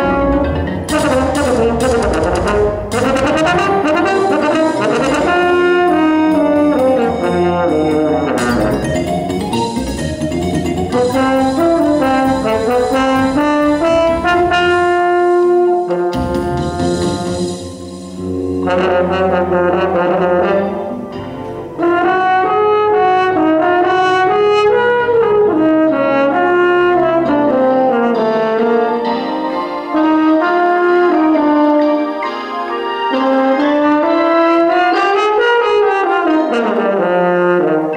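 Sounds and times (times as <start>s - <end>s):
french horn playing: 0.0s - 8.9s, 10.9s - 37.9s
electronic tape music: 0.0s - 14.9s, 16.1s - 19.1s.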